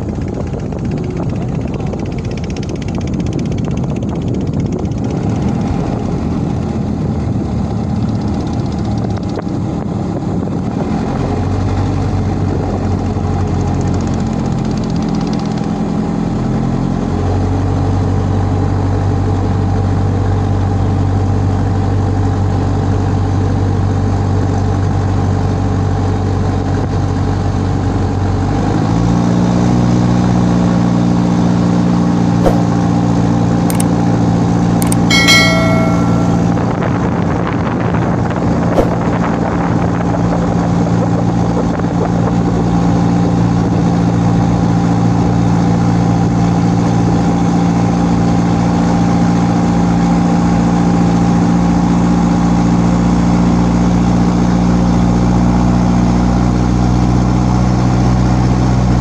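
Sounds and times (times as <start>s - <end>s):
boat engine running: 0.0s - 16.2s, 31.0s - 49.9s
short chime: 34.8s - 36.8s.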